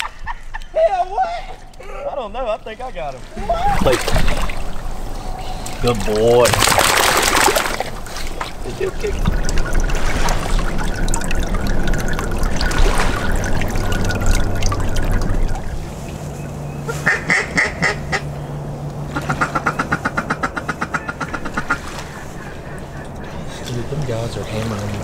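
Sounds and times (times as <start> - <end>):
water sloshing: 2.8 - 25.0
duck call quacking: 16.9 - 18.3, 19.1 - 23.1.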